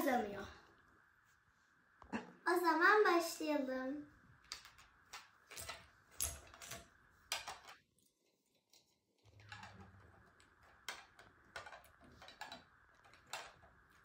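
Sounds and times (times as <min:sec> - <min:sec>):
plastic game cubes clicking: 0:04.5 - 0:07.8, 0:09.4 - 0:14.0.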